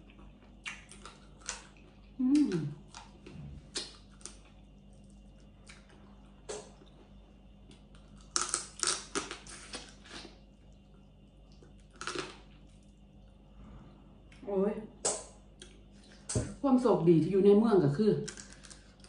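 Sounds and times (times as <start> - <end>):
mouth chewing: 0.0 - 7.0
lip smacks: 0.6 - 1.6.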